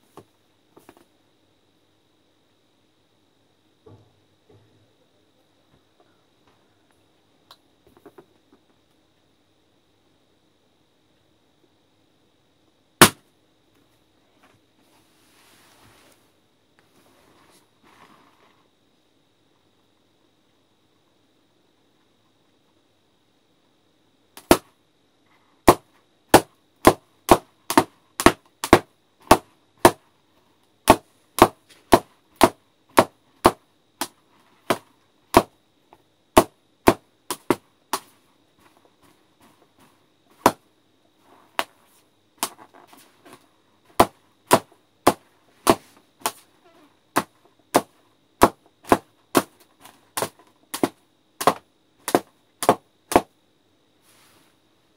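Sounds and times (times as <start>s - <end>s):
balloons popping: 13.0s - 13.2s, 24.4s - 24.7s, 25.6s - 30.0s.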